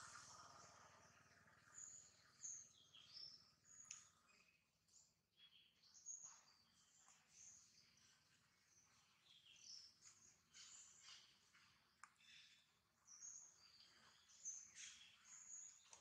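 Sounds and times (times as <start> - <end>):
small birds chirping: 0.0 - 16.0
faint click: 3.8 - 4.1.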